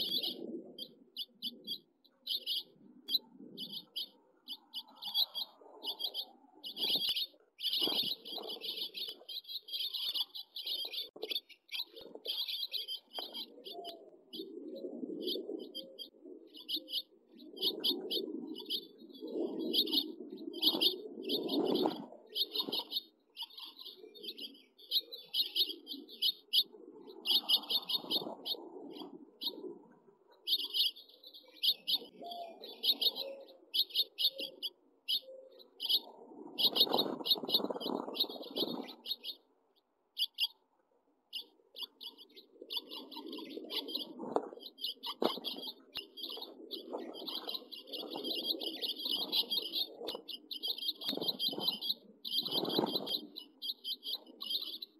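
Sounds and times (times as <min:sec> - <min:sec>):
fledglings chirping: 0:00.0 - 0:29.7, 0:30.4 - 0:39.5, 0:40.2 - 0:40.6, 0:41.3 - 0:54.9
wing fluttering: 0:42.7 - 0:53.4.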